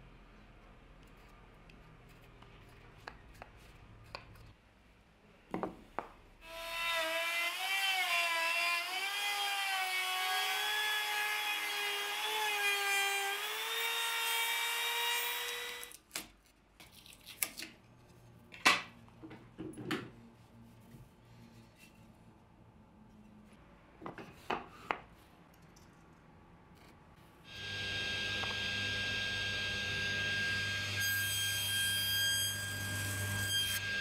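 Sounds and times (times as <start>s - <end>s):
router whining while cutting wood: 27.5s - 31.0s.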